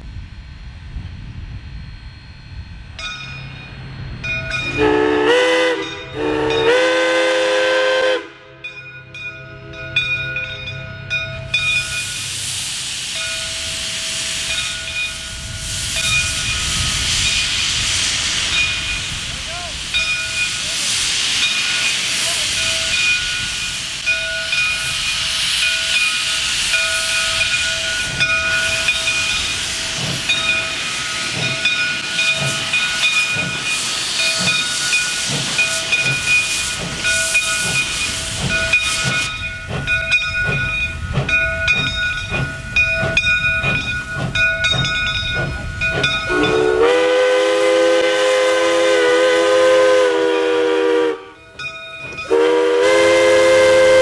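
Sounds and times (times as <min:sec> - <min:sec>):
locomotive bell ringing: 0:02.1 - 0:07.2, 0:08.3 - 0:17.5, 0:18.4 - 0:48.6, 0:50.2 - 0:54.0
steam whistle blast: 0:04.7 - 0:08.5, 0:46.3 - 0:51.4, 0:52.3 - 0:54.0
steam hissing: 0:11.1 - 0:54.0
steam exhaust chuffs: 0:11.4 - 0:54.0.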